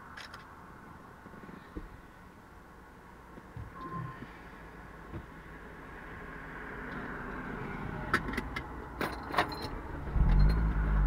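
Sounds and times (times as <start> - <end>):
steady vehicle noise: 0.0 - 11.0
sharp metallic clicks and jingles: 9.0 - 11.0.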